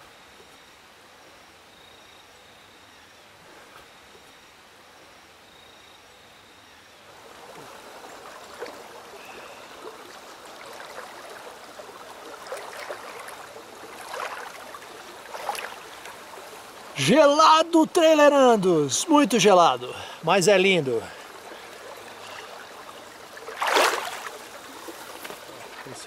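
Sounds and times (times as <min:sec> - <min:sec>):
flowing stream murmur: 0:06.8 - 0:26.0
feet splashing in water: 0:07.2 - 0:17.0, 0:21.0 - 0:26.0.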